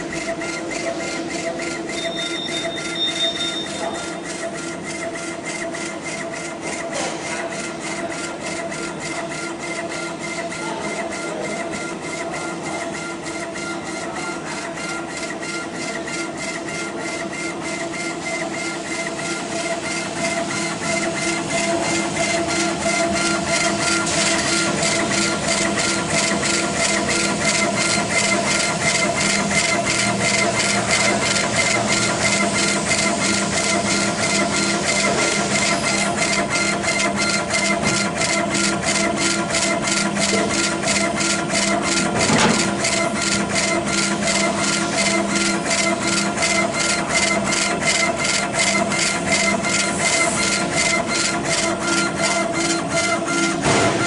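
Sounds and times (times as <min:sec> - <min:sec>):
steady machine hum: 0:00.0 - 0:54.0.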